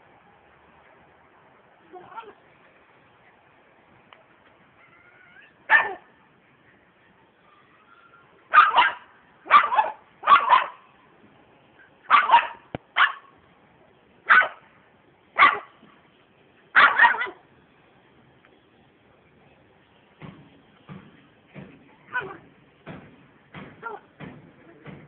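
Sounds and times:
dog barking: 5.7s - 6.0s, 8.5s - 10.8s, 12.1s - 13.3s, 14.3s - 14.6s, 15.4s - 15.7s, 16.8s - 17.4s.

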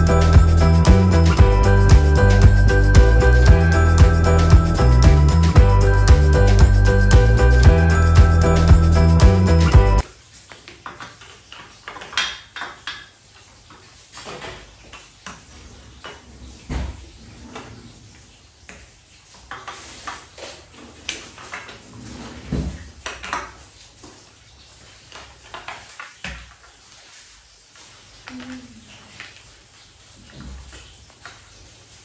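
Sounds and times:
jingling music: 0.0s - 10.0s.

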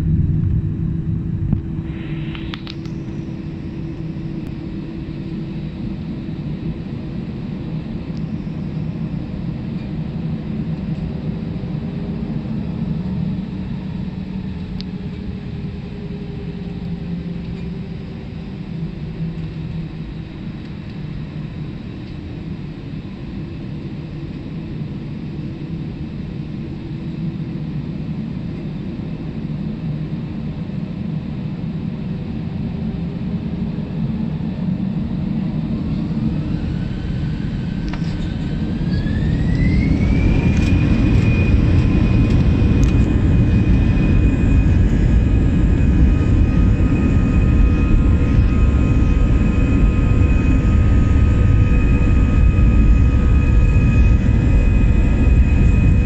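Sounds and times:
low engine tones: 0.0s - 22.3s, 34.4s - 56.0s
rising whine: 0.0s - 23.3s, 33.6s - 56.0s
jet cabin rumble: 0.0s - 56.0s.

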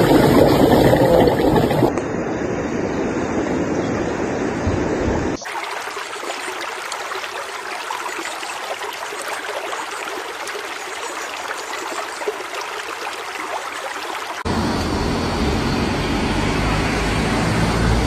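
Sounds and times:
water bubbling through sand: 0.0s - 1.9s
low wind-like rumble: 1.2s - 5.4s.

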